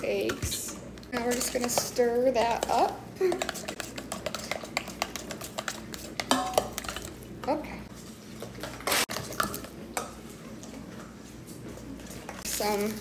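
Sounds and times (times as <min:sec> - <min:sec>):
utensil clinking in metal bowl: 0:00.0 - 0:07.6.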